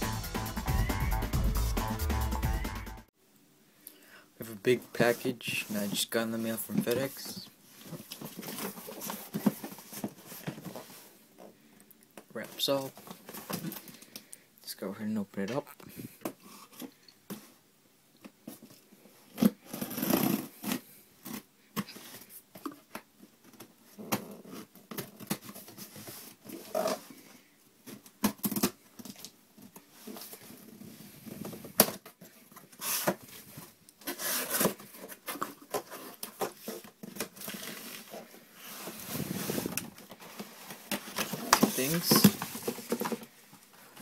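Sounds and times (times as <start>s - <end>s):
tape and cardboard tearing: 19.3s - 21.5s, 28.2s - 28.8s, 34.0s - 38.2s
knife cutting packing tape: 34.0s - 36.2s
box knocks and rustles: 38.9s - 43.3s.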